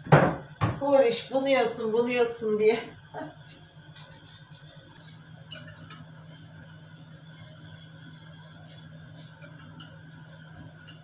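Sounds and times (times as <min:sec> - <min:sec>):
steady low hum: 0:00.0 - 0:11.0
spoon clinking against glass: 0:05.5 - 0:06.0, 0:09.4 - 0:10.0.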